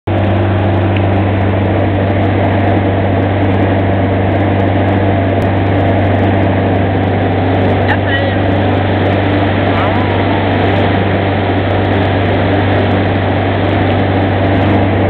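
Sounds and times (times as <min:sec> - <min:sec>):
speedboat engine drone: 0:00.1 - 0:15.0
wind and water rushing: 0:05.1 - 0:15.0.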